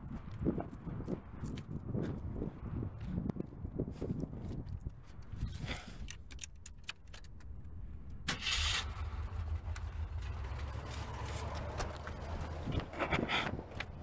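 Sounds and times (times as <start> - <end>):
keys jingling: 0.6 - 2.0, 5.7 - 7.6
car engine cranking and idling: 4.8 - 14.0.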